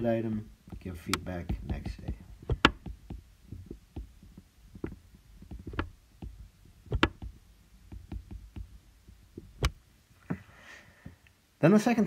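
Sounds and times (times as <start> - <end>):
stylus tapping on glass screen: 0.7 - 9.8.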